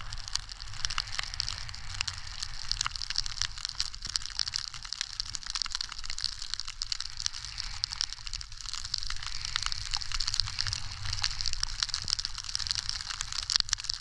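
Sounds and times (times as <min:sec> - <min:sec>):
skis sliding on snow: 0:06.9 - 0:14.0.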